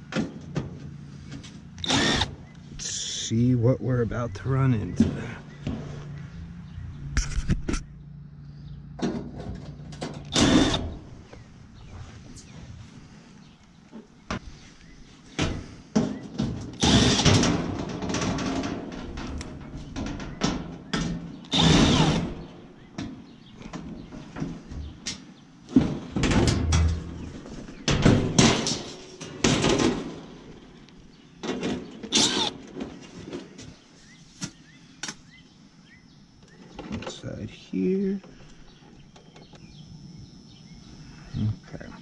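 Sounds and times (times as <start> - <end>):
sheet metal banging and scraping: 9.0 - 11.0, 15.4 - 25.0, 25.7 - 30.7, 31.4 - 33.5.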